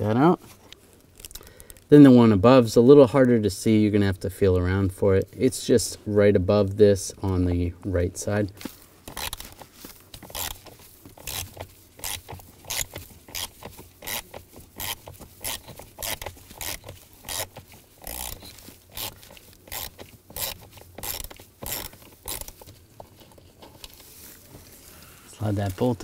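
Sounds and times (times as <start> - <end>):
ratchet clicking: 9.1 - 9.6, 10.2 - 23.2.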